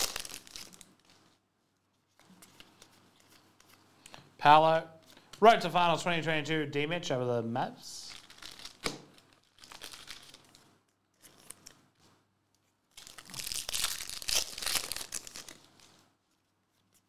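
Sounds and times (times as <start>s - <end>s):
card pack wrapper tearing and crinkling: 0.0s - 1.3s, 8.0s - 10.6s, 12.9s - 15.9s.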